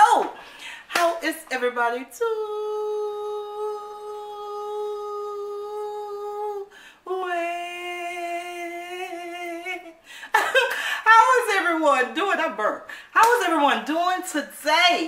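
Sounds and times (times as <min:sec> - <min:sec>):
woman singing long notes: 0:02.1 - 0:10.0.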